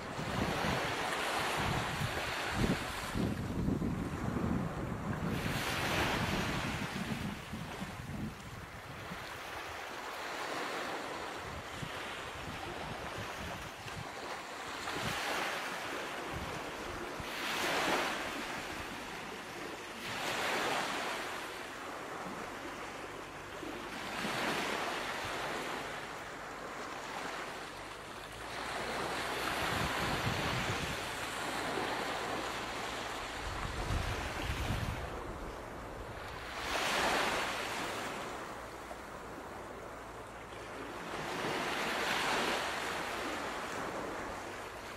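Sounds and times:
ocean waves breaking: 0.0s - 44.9s.

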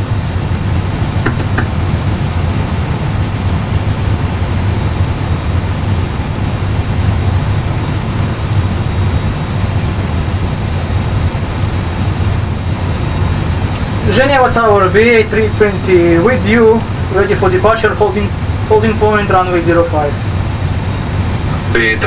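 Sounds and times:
jet engines idling: 0.0s - 22.0s.

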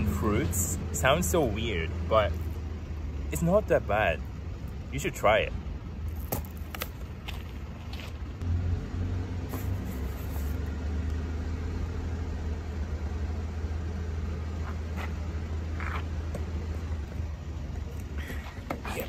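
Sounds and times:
vehicle engine humming: 0.0s - 19.0s.

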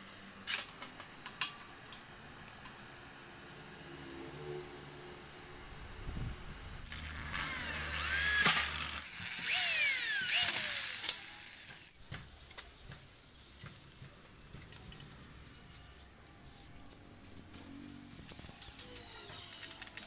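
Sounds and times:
electric drill boring sheet metal: 6.8s - 12.0s.

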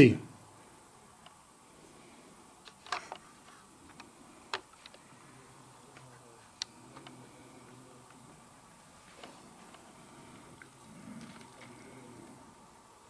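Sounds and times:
faint clicks and ticks: 2.6s - 5.2s, 5.8s - 8.2s, 9.1s - 12.4s.

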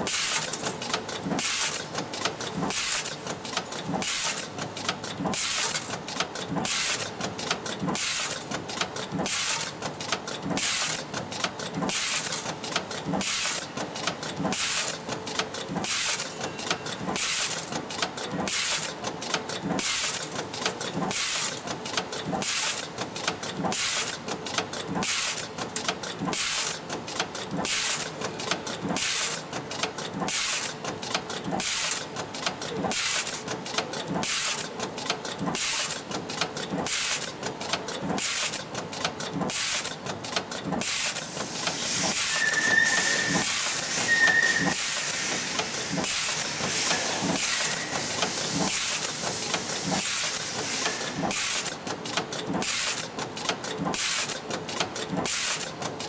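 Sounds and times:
compressed air hisses: 41.2s - 51.2s.

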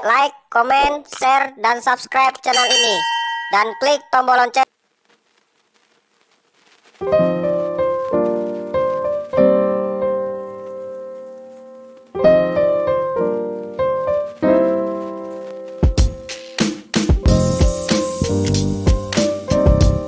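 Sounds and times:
piano chords: 7.0s - 20.0s
drum beats: 15.7s - 20.0s.

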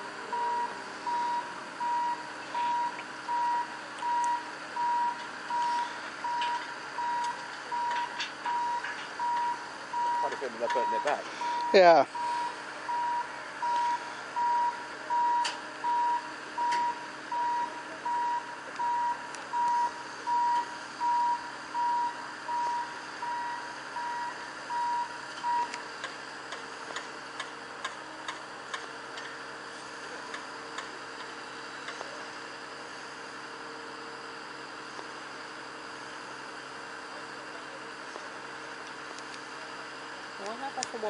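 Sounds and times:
steady background hum: 0.0s - 41.0s
warning beeper beeps: 0.3s - 25.7s.

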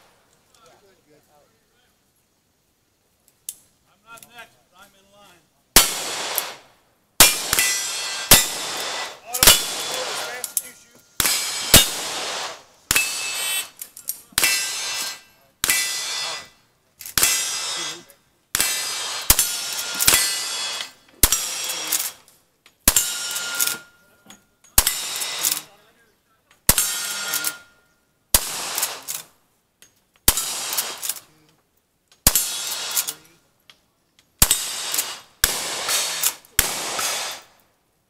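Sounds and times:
gunshots: 5.8s - 13.8s, 14.4s - 22.2s, 24.8s - 25.7s, 26.7s - 27.7s, 28.3s - 29.3s, 30.3s - 31.3s, 32.2s - 33.3s, 34.4s - 37.6s
steel target clanging: 7.2s - 12.2s, 12.9s - 22.2s, 22.9s - 25.7s, 26.7s - 29.2s, 32.3s - 33.2s.

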